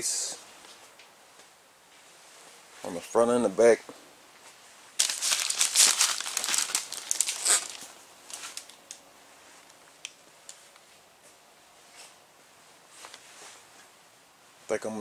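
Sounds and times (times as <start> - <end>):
paper and tape crinkling: 5.0 - 9.0.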